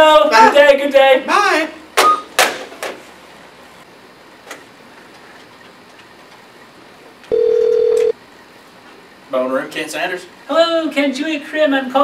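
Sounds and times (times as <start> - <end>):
desk telephone ringing: 7.3 - 8.2.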